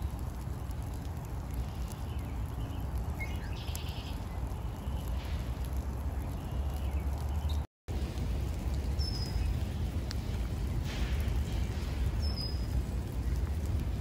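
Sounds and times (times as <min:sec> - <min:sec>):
low rumble: 0:04.2 - 0:14.0.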